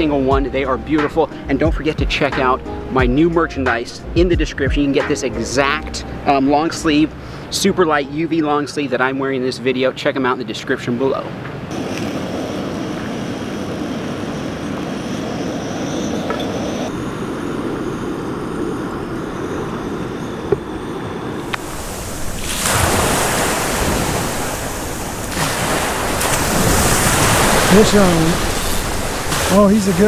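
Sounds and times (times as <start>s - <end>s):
wind on microphone: 11.7s - 30.0s
small waves washing onto beach: 17.2s - 30.0s.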